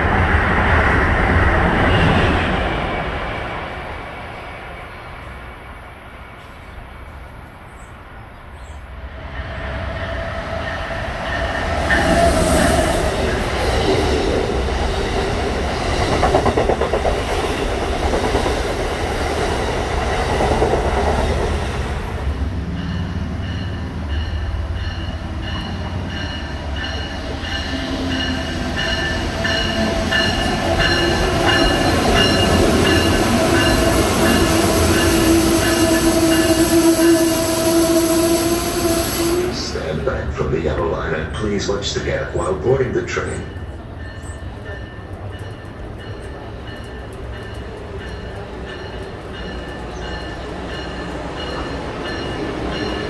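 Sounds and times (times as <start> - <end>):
train rumbling: 0.0 - 53.0
train wheels and brakes squealing: 9.2 - 13.8, 22.8 - 39.6.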